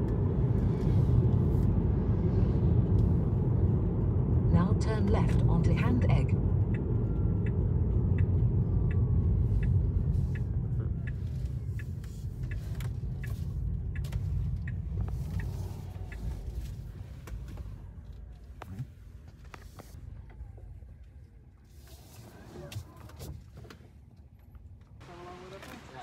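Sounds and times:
engine and road rumble: 0.0 - 26.0
turn signal ticking: 2.7 - 19.6.

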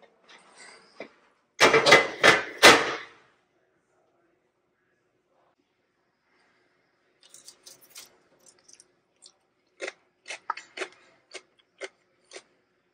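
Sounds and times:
crunching of baked chips: 7.2 - 12.6.

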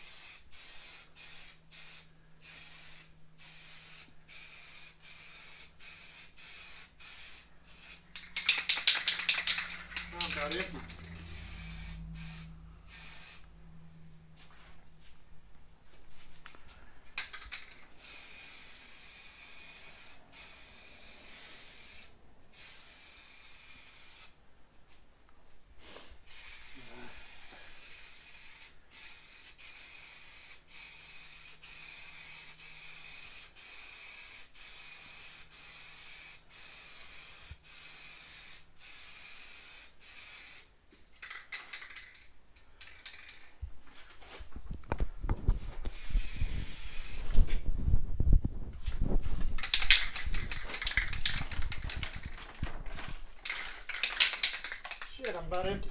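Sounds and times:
aerosol spray can hissing: 0.0 - 13.5, 17.4 - 24.4, 26.2 - 40.7, 45.9 - 47.4, 49.5 - 52.4.

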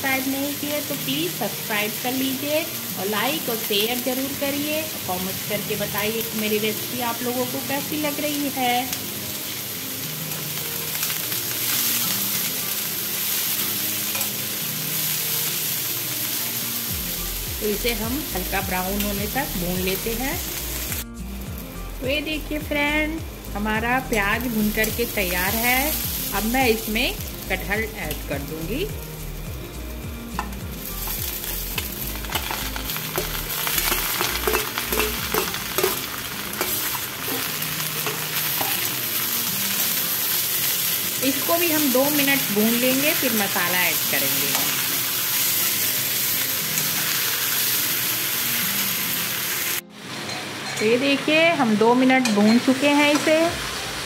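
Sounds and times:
onions sizzling in hot oil: 0.0 - 54.0
metal spoon scraping a pan: 32.3 - 38.9.

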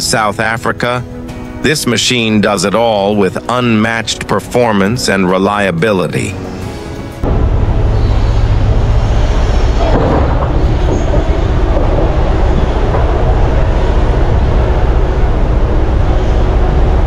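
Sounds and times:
excavator diesel engine droning: 6.2 - 17.0.

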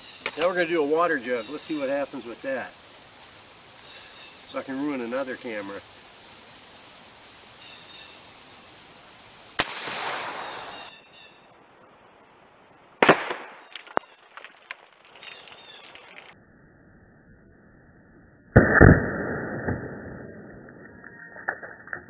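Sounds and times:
air rifle shot: 9.6 - 10.9, 13.0 - 13.6.

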